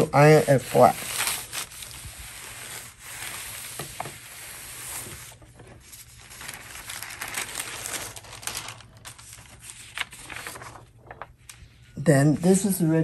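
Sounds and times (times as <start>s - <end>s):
iron sliding over paper: 0.0s - 8.1s
paper crinkling and rustling: 0.0s - 12.0s.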